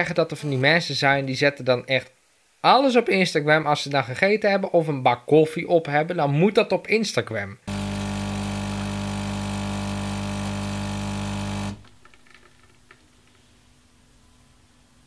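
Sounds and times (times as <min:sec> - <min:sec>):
coffee machine humming: 0:07.7 - 0:11.9.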